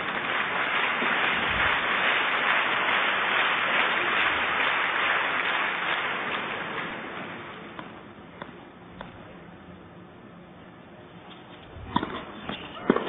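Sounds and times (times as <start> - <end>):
crowd clapping: 0.0 - 8.0.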